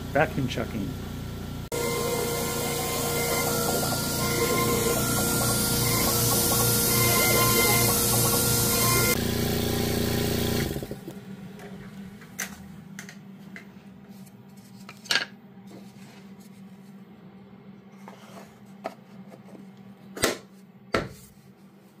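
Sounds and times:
loud steady noise: 1.7s - 10.8s.

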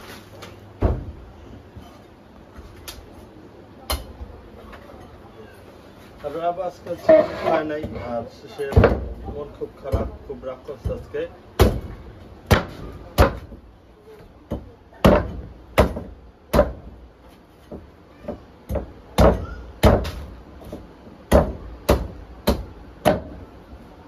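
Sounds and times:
machete chopping coconut: 10.8s - 13.6s, 14.5s - 16.9s, 18.7s - 23.4s.

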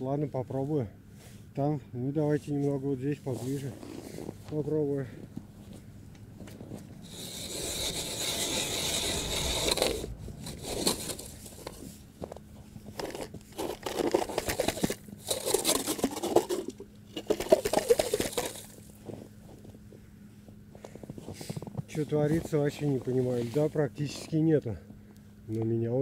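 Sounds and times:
ice auger cutting ice: 7.0s - 19.2s, 21.3s - 24.5s.

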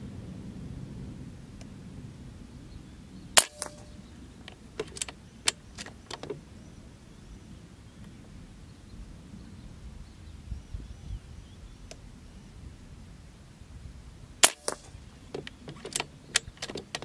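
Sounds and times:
air rifle shot crack: 3.4s - 5.8s, 14.4s - 16.0s
rifle action clicks: 3.4s - 6.4s, 14.4s - 17.0s.

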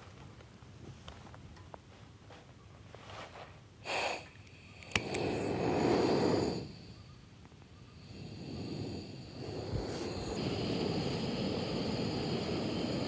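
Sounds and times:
stove burner igniting whoosh: 3.8s - 13.0s
match striking on box: 3.9s - 6.6s
sharp click: 4.4s - 5.3s.

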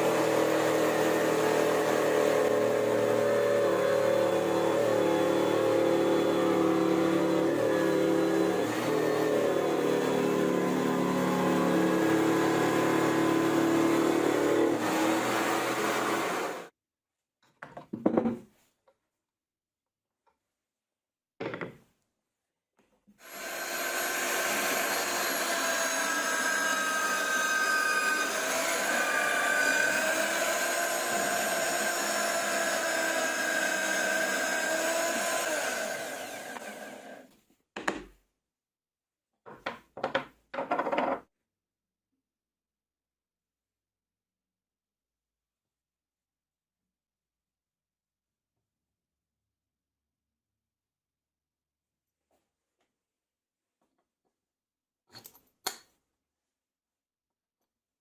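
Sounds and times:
band saw cutting plywood: 0.0s - 16.7s, 23.2s - 37.3s
drill press whining: 0.0s - 16.7s, 23.2s - 37.3s
plywood discs knocking on bench: 17.6s - 18.4s, 21.4s - 21.8s, 39.4s - 41.2s.

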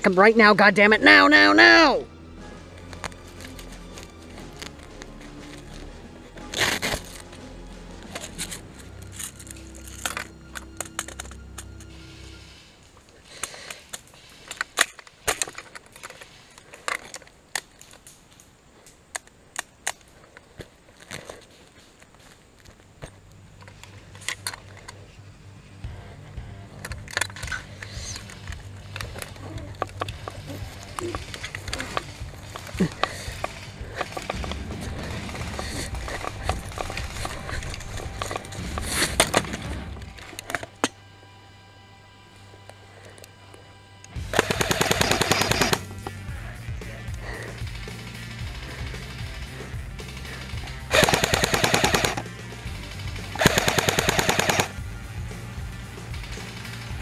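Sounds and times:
gear rattling: 26.8s - 40.8s, 47.0s - 57.0s
sharp clicks: 44.0s - 46.2s, 47.4s - 54.8s
airsoft gun shots: 44.3s - 45.9s, 50.9s - 52.3s, 53.2s - 54.8s.

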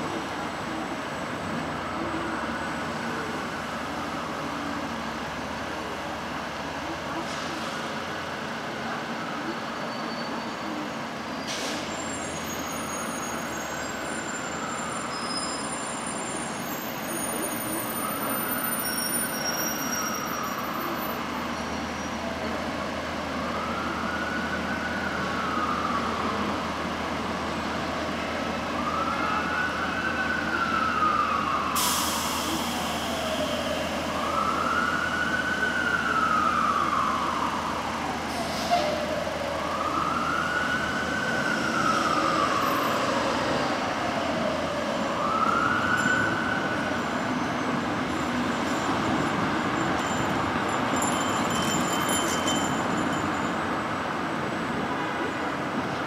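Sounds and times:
city traffic noise: 0.0s - 56.0s
emergency siren wailing: 22.1s - 49.2s.

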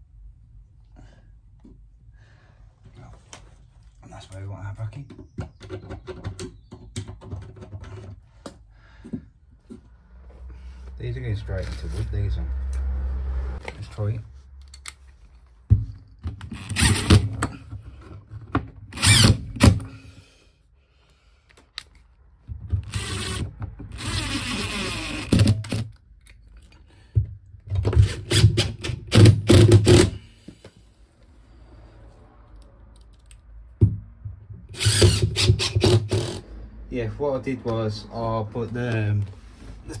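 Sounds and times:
impact driver driving screws: 16.3s - 17.6s, 18.9s - 20.0s, 22.7s - 26.0s, 27.8s - 30.2s, 34.7s - 36.4s.

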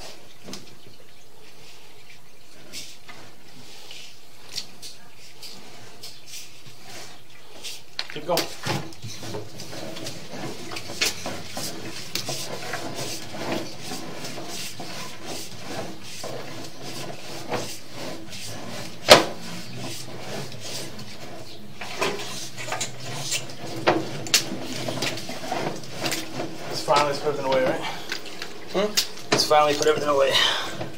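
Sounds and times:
cable rubbing and scraping: 2.5s - 30.9s.

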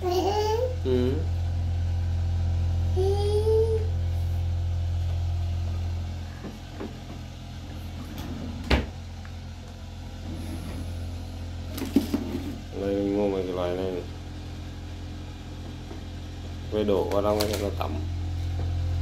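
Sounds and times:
small child vocal sound: 0.0s - 1.1s, 2.9s - 4.0s
steady low hum: 0.0s - 19.0s.

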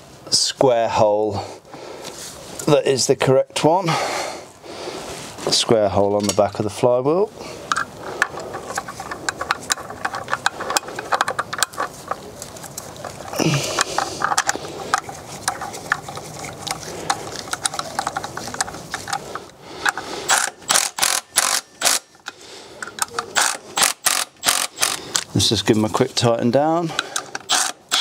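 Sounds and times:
metallic clicks of bolts being fitted: 17.5s - 25.3s.

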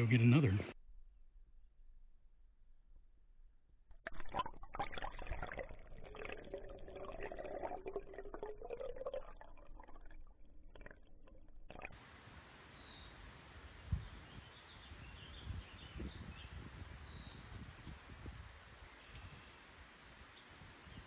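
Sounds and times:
stream water gurgling: 4.1s - 12.0s.

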